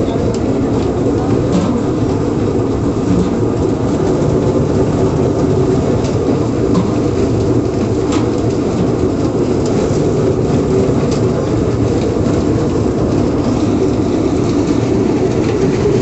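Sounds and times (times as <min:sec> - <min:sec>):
loud steady rumbling: 0:00.0 - 0:16.0.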